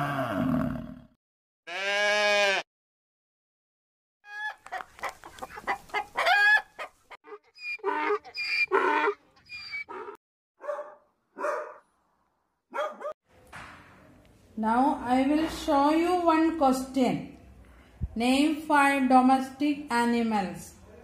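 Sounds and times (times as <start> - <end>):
hen clucking and cackling: 4.3 - 10.2.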